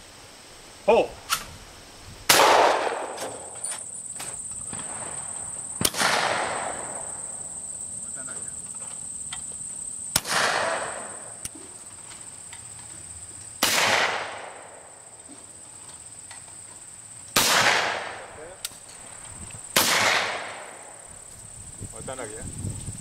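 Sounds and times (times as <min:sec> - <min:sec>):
high insect buzz: 0:00.0 - 0:23.0
shotgun shots with echo: 0:02.3 - 0:03.5, 0:05.8 - 0:07.1, 0:10.1 - 0:11.3, 0:13.6 - 0:14.8, 0:17.4 - 0:18.3, 0:19.8 - 0:21.0.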